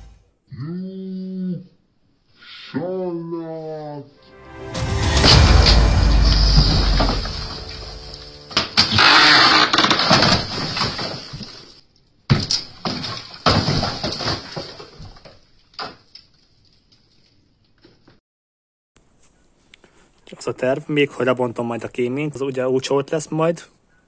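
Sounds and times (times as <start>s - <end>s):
clay and laths crashing down: 4.8s - 16.0s.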